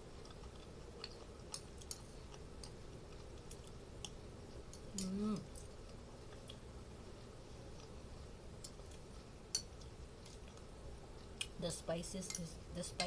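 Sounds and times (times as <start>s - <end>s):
quiet chewing: 0.0s - 11.6s.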